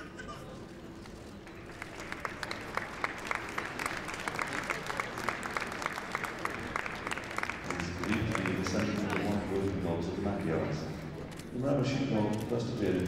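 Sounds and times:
audience applauding: 1.4s - 10.5s.

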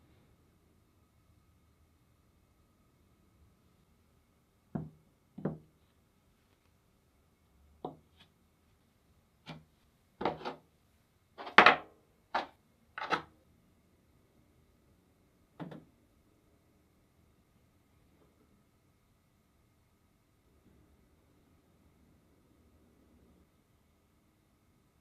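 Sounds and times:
tools knocking on wooden workbench: 4.8s - 5.7s.

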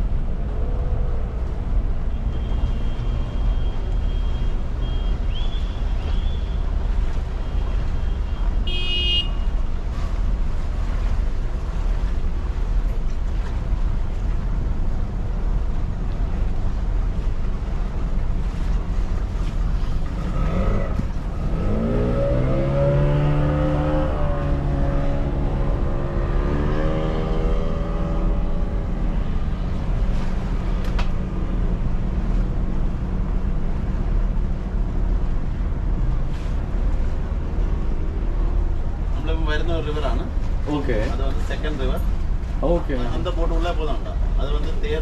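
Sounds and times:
boat engine rumble: 0.0s - 45.0s
other boat engine: 0.0s - 45.0s
water: 0.0s - 45.0s
wind: 0.0s - 45.0s.

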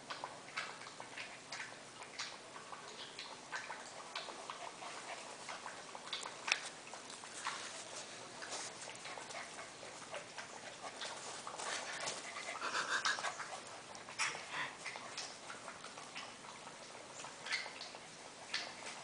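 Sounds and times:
puppies scuffling: 2.1s - 19.0s
puppies panting: 3.5s - 19.0s
puppy crying: 12.5s - 13.4s.

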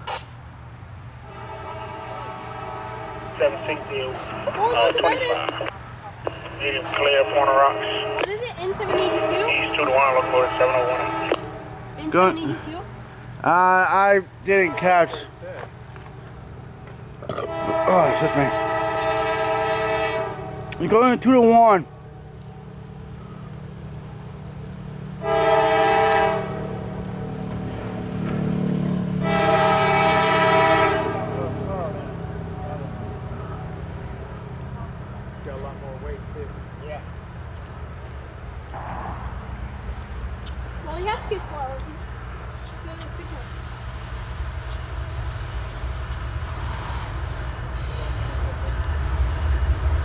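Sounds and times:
train rumble: 0.0s - 50.0s
locomotive air horn: 1.2s - 4.4s, 6.6s - 11.9s, 14.5s - 15.3s, 17.3s - 20.8s, 25.2s - 27.0s, 29.2s - 31.5s.

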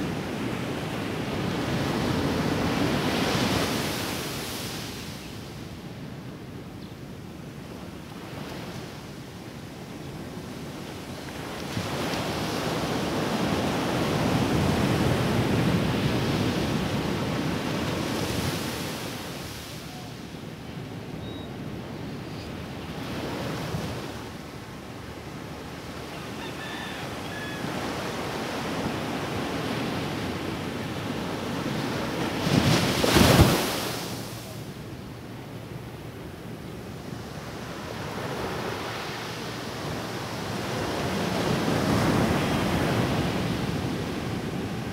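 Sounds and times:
small waves breaking on beach: 28.1s - 34.6s.

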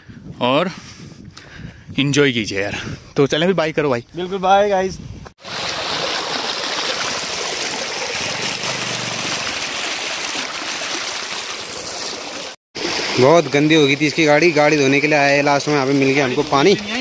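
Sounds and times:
stream running over stones: 5.4s - 17.0s.

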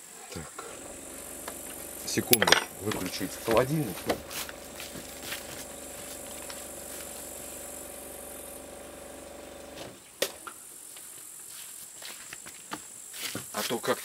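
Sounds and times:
refrigerator compressor humming: 0.8s - 10.0s.

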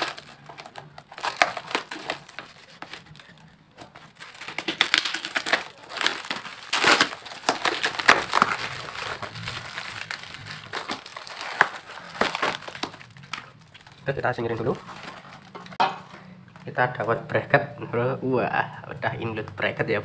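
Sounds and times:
scissors snipping plastic: 0.0s - 9.8s
plastic and foam crinkling: 0.0s - 16.9s.

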